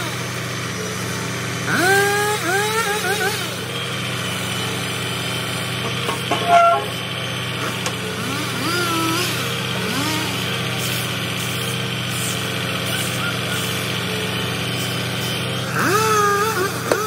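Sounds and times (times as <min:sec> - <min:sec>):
diesel truck engine idling: 0:03.4 - 0:17.0.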